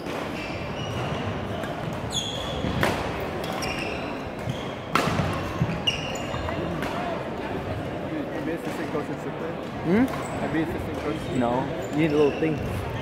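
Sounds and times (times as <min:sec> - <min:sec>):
sneakers squeaking on gym floor: 0:00.0 - 0:07.1, 0:09.9 - 0:13.0
racket hitting shuttlecock: 0:00.1 - 0:03.6, 0:04.3 - 0:05.8.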